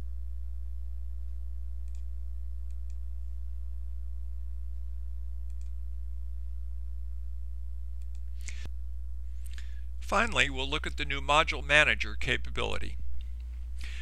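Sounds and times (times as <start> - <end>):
low electrical hum: 0.0 - 14.0
computer mouse clicks: 1.8 - 2.1, 2.7 - 3.0, 5.5 - 5.8, 8.0 - 8.3.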